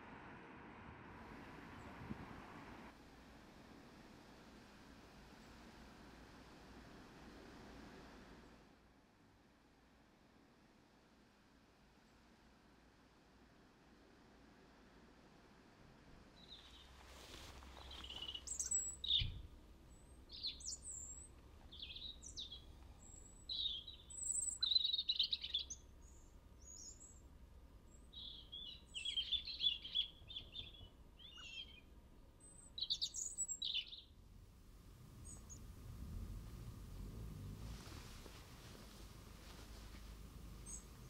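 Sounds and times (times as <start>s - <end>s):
songbirds chirping: 16.0s - 41.0s.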